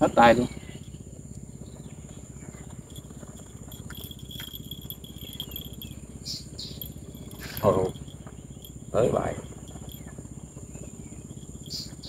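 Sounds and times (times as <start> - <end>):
insects droning: 0.0 - 12.0
shrill insect chirping: 0.0 - 12.0
low pulsing: 2.4 - 12.0.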